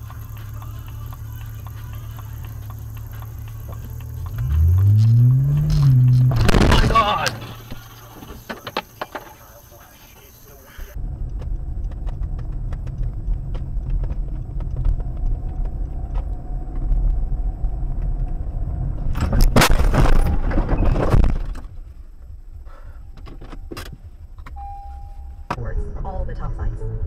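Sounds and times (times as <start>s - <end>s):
car road and engine rumble: 0.0s - 27.0s
loud car collision crashing: 5.7s - 9.3s, 19.2s - 21.8s.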